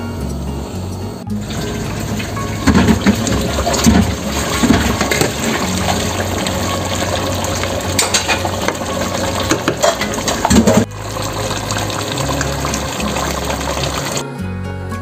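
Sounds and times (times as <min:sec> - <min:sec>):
background music with bass line: 0:00.0 - 0:15.0
stew bubbling in a pot: 0:01.3 - 0:14.2
spoon scraping and knocking pot: 0:02.6 - 0:06.1, 0:07.8 - 0:10.9.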